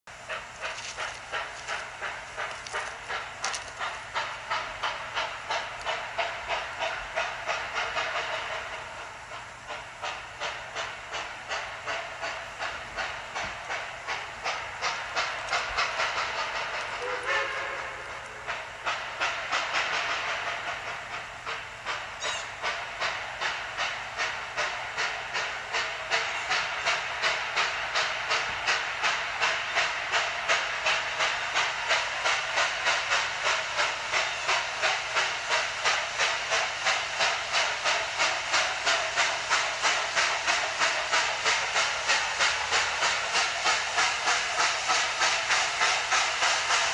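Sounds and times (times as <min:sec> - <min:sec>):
steam locomotive chuffs with hiss: 0:00.1 - 0:46.9.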